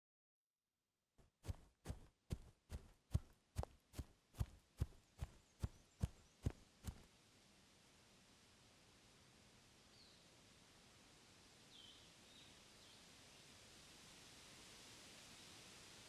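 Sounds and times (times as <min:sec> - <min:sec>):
footsteps on dry grass: 0:01.2 - 0:07.0
faint outdoor hiss: 0:01.9 - 0:16.0.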